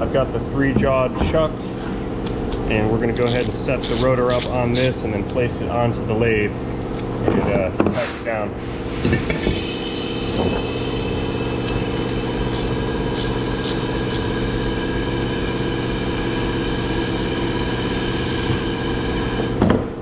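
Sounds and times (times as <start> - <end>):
steady mechanical hum: 0.0 - 20.0.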